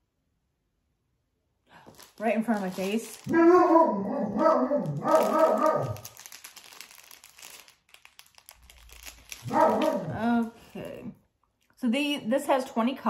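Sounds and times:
plastic bags crinkling: 1.7s - 11.2s.

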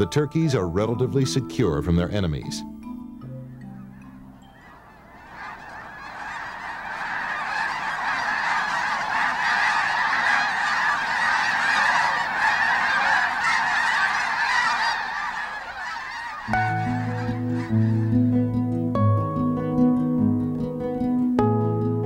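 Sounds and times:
flock of geese honking: 3.6s - 20.0s.

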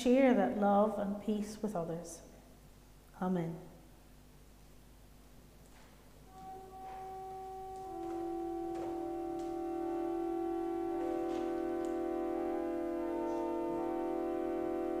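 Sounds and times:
slow sustained chords: 6.2s - 15.0s.

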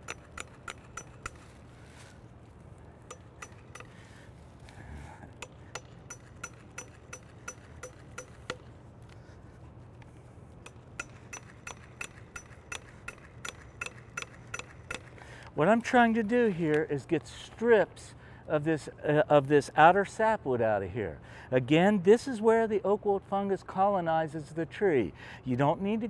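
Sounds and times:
faint steady hum: 0.0s - 22.2s.

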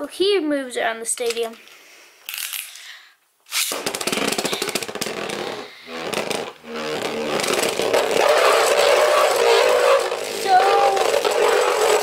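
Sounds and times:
spinning top launching: 3.5s - 12.0s
spinning top rattling on plastic: 8.4s - 12.0s.

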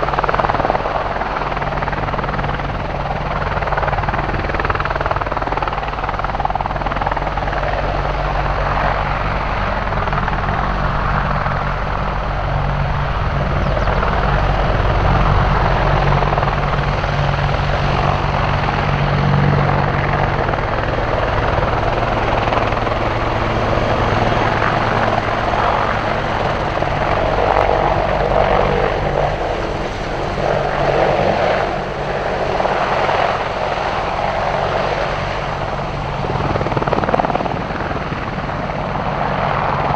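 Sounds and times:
helicopter rotor and engines: 0.0s - 39.9s.

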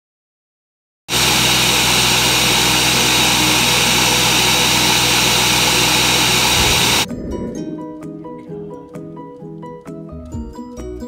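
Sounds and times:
blender motor grinding: 1.1s - 7.1s
background music with plinking notes: 7.1s - 11.0s.

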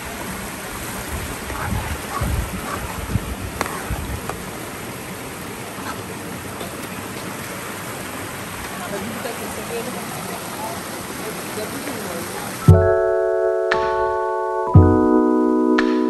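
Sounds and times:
river flowing: 0.0s - 13.5s.

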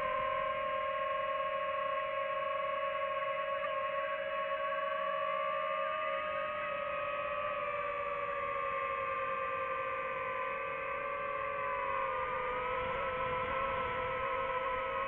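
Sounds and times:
drone propellers humming: 7.3s - 15.0s.

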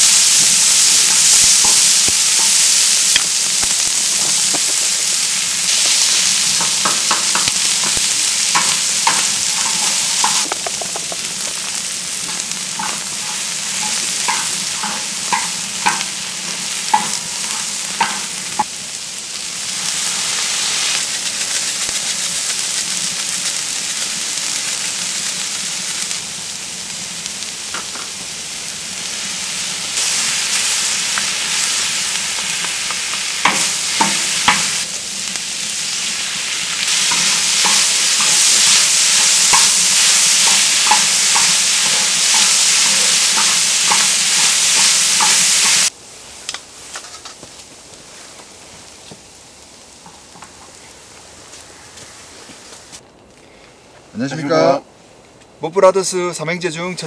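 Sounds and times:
vegetables and meat sizzling: 0.0s - 53.0s.

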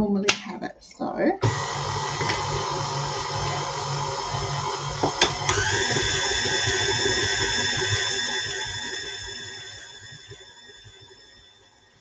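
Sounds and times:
mixer click: 1.4s - 2.6s, 5.0s - 7.5s
stand mixer motor whine: 1.4s - 12.0s
higher whine: 2.0s - 11.7s.

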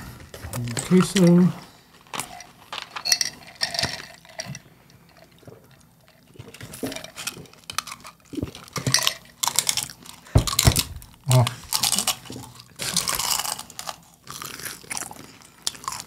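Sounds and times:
chewing: 2.0s - 10.6s, 11.2s - 16.0s.

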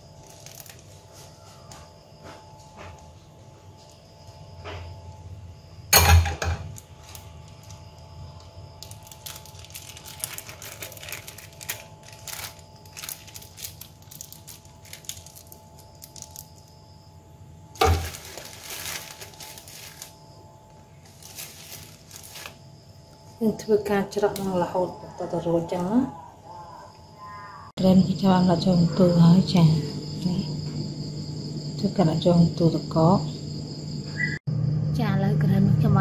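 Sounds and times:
plastic bags crinkling: 0.0s - 1.3s, 8.8s - 16.7s, 17.8s - 22.7s.

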